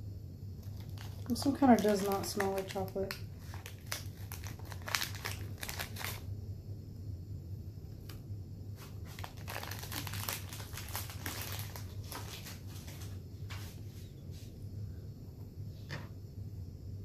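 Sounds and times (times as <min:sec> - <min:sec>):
packaging crinkling and rustling: 0:00.6 - 0:06.3, 0:08.8 - 0:13.6.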